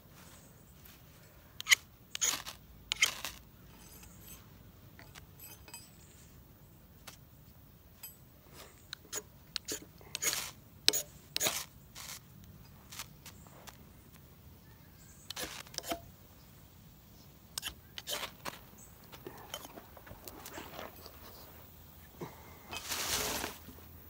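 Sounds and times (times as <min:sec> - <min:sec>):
knife scraping ferrocerium rod: 0:01.6 - 0:05.9, 0:09.0 - 0:12.2, 0:15.3 - 0:16.1, 0:17.6 - 0:18.6.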